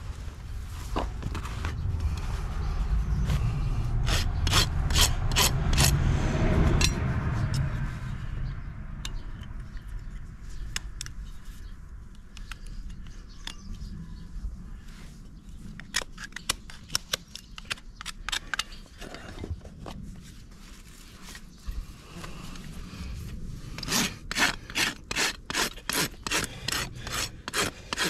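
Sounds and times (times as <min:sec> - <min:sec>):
low rumble: 0:00.0 - 0:12.0
scraping strokes on hoof: 0:03.3 - 0:06.0, 0:14.9 - 0:28.0.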